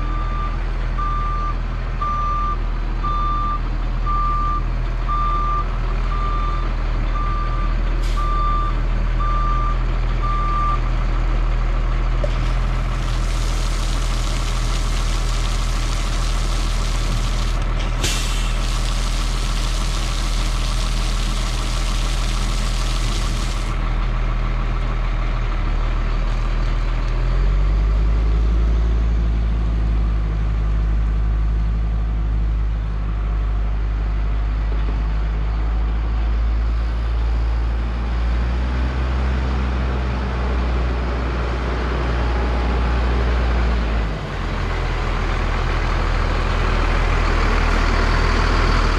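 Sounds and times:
diesel truck engine running: 0.0s - 48.9s
water spray hissing: 12.4s - 23.8s.

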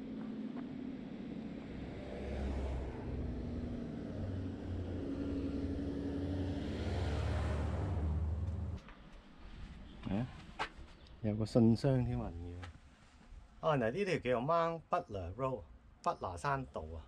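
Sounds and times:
truck engine droning past: 0.0s - 8.8s.

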